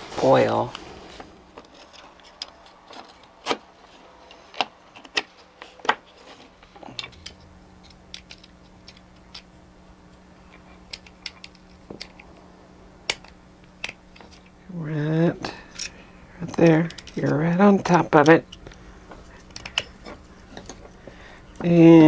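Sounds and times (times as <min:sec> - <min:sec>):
metal toy motor clicking: 0:19.4 - 0:20.0.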